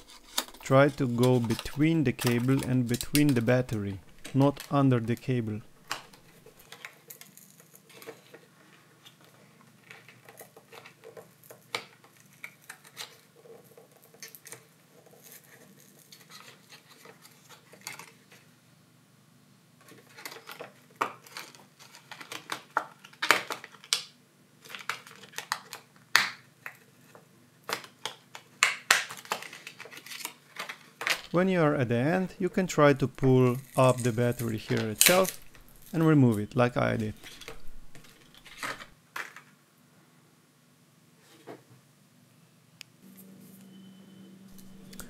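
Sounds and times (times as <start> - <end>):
plastic card scraping and clicking: 0.0 - 8.5, 32.0 - 38.9.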